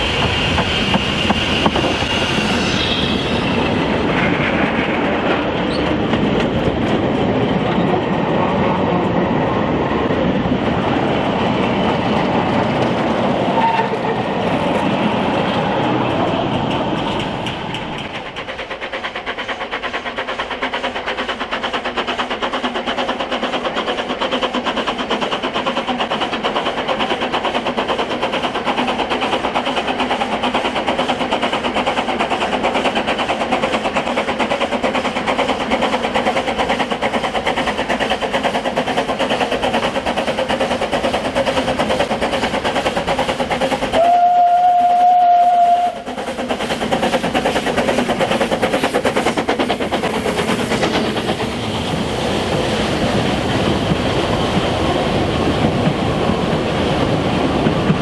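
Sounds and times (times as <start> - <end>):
train wheels clattering on rails: 0.0 - 58.0
steam whistle blast: 13.5 - 14.2, 44.0 - 46.1.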